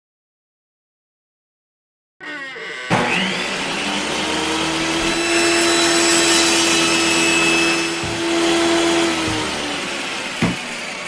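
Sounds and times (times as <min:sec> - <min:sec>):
circular saw cutting wood: 0:02.2 - 0:11.0.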